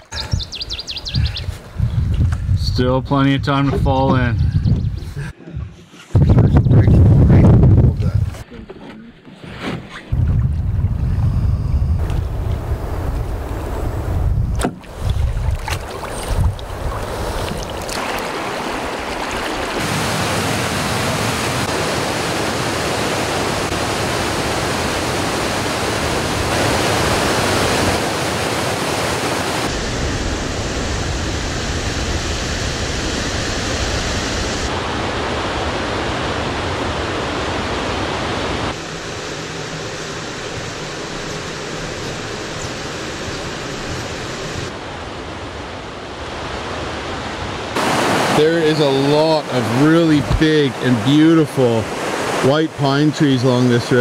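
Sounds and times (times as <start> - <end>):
low rumble: 10.1 - 14.6
river water rushing: 14.8 - 30.4, 34.6 - 54.0.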